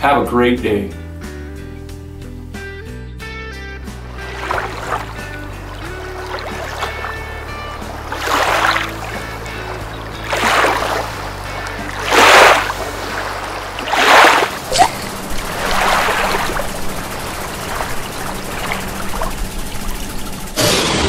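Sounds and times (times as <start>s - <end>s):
watery whooshes: 4.0s - 20.6s
low steady hum: 12.6s - 20.6s.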